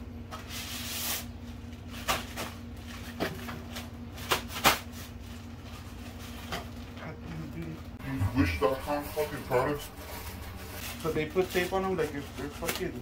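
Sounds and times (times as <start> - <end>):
steady low hum: 7.9 - 11.6.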